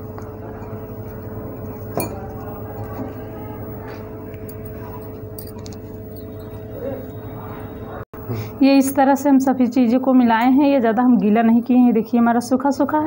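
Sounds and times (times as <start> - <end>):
clink against glass bowl: 0.2 - 2.5.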